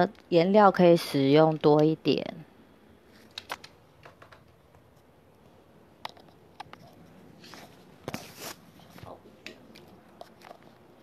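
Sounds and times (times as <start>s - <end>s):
soft brushing: 6.8s - 9.2s.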